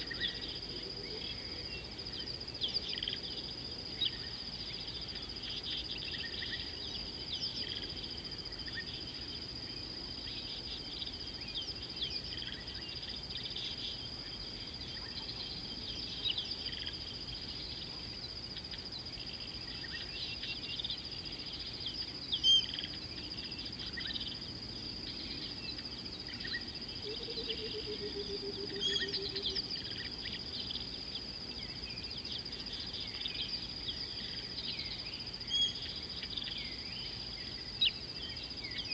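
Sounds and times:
high-pitched insect drone: 0.0 - 38.9
bird chirps: 25.1 - 38.9.

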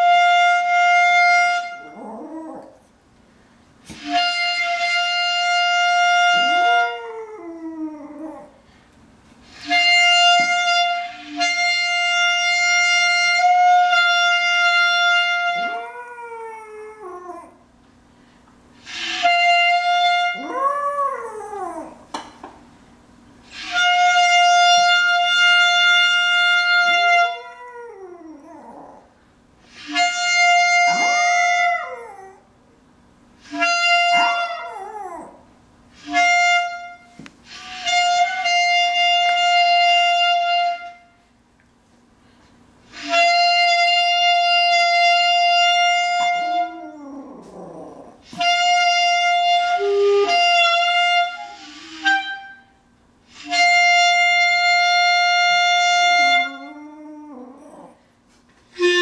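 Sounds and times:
clarinet long held notes: 0.0 - 2.7, 3.9 - 8.4, 9.5 - 17.5, 18.8 - 22.0, 23.5 - 29.0, 29.7 - 32.4, 33.4 - 35.3, 36.0 - 41.2, 42.9 - 57.9, 58.7 - 59.0
small dog howling: 20.4 - 22.1, 27.4 - 29.1, 34.1 - 35.5, 46.7 - 48.3, 56.4 - 58.0.

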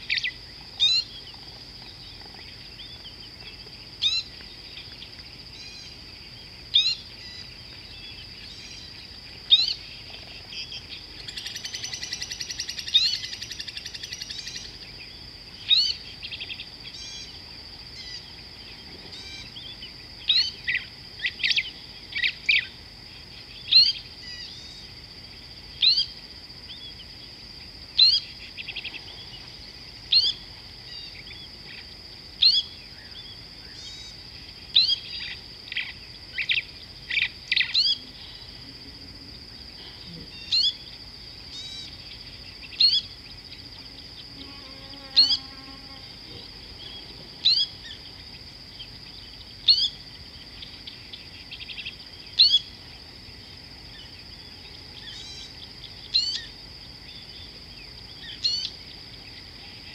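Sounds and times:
insect drone: 0.0 - 59.9
bird call: 55.0 - 56.5, 58.3 - 58.7.

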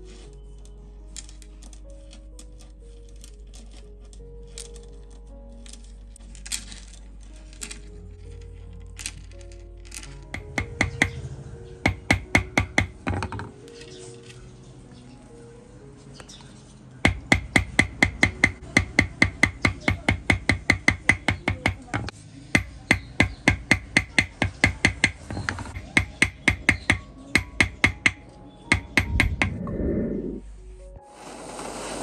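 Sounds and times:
small hammer tapping metal: 9.9 - 11.2, 11.8 - 13.5, 17.0 - 29.5.

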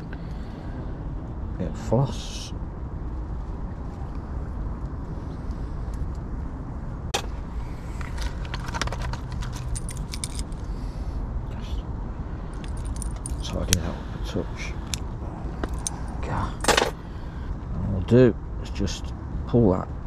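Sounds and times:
steady low rumble: 0.0 - 20.0
fishing tackle clicking and rattling: 8.3 - 10.6, 12.6 - 13.8, 15.6 - 17.0.

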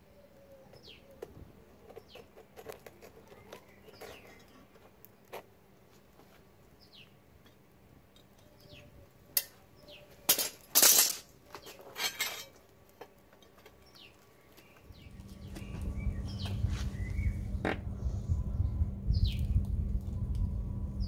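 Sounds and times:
small birds chirping: 0.0 - 5.5, 6.7 - 10.3, 13.0 - 19.6
tongs scraping crucible: 1.9 - 5.4.

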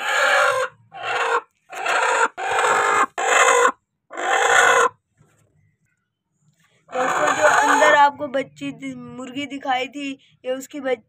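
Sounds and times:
hen giving harsh rasping calls: 0.0 - 5.0, 6.9 - 8.2.

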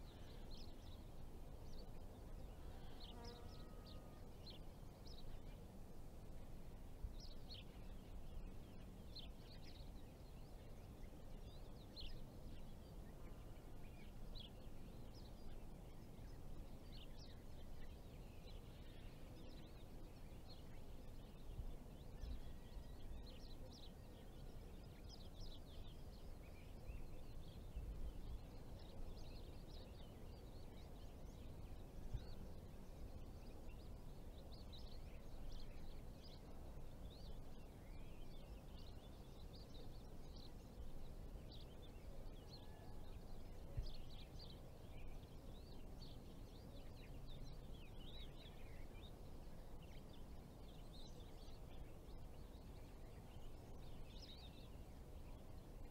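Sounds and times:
small birds chirping: 0.0 - 55.9.

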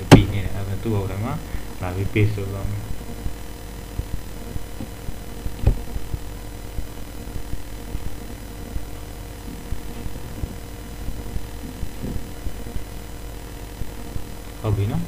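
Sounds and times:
soft low thumps: 0.0 - 0.8, 2.6 - 15.0
steady low hum: 0.0 - 15.0.

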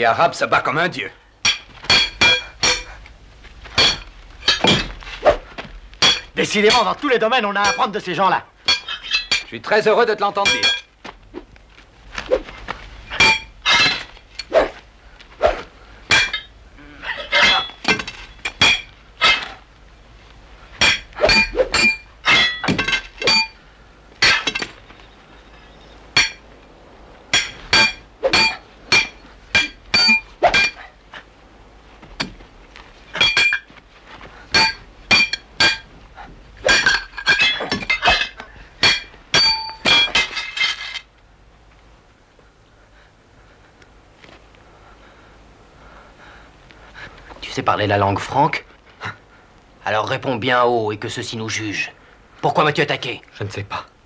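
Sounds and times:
swords clashing: 1.5 - 2.9, 3.8 - 5.4, 6.0 - 7.0, 7.6 - 8.0, 8.7 - 9.6, 10.4 - 10.9, 13.1 - 14.7, 15.5 - 16.5, 17.1 - 19.6, 20.8 - 23.6, 24.2 - 24.8, 27.4 - 30.8, 36.6 - 40.9.

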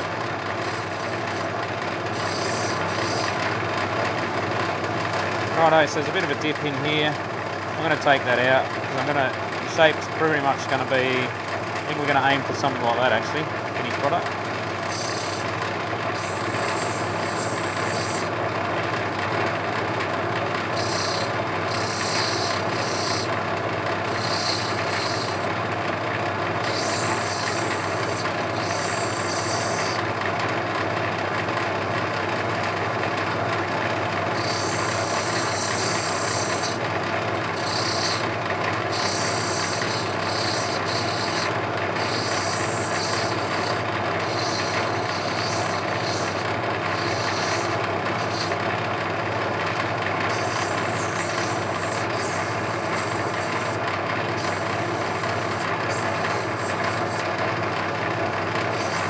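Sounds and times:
motor hum: 0.0 - 59.0
stone grinding on wheel: 2.1 - 3.5, 16.1 - 18.3, 20.6 - 23.4, 24.0 - 25.6, 26.6 - 30.0, 34.3 - 36.8, 37.5 - 48.7, 50.3 - 57.3, 58.7 - 59.0.

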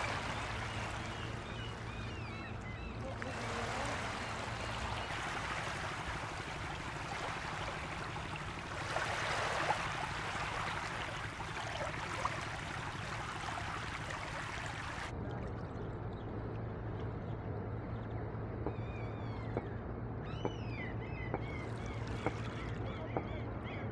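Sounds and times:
small waves lapping and splashing: 0.0 - 15.8, 21.4 - 23.4
soft water wash: 0.0 - 17.6.

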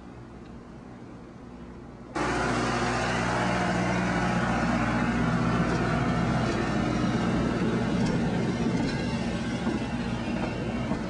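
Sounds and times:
train engine running: 2.0 - 11.0.

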